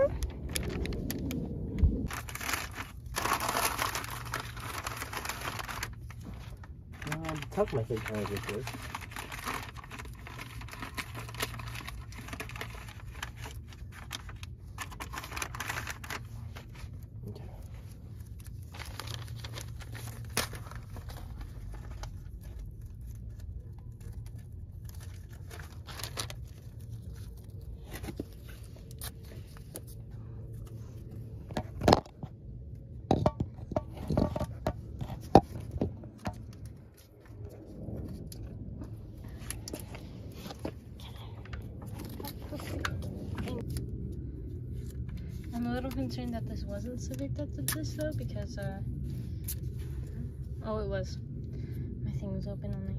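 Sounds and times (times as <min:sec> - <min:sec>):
steady low hum: 0:00.0 - 0:52.9
newspaper crinkling: 0:02.0 - 0:31.4.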